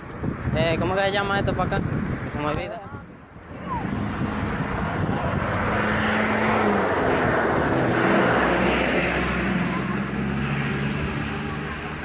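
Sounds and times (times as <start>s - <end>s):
rush of wind noise: 0.0s - 12.0s
vehicle engine running: 8.9s - 12.0s.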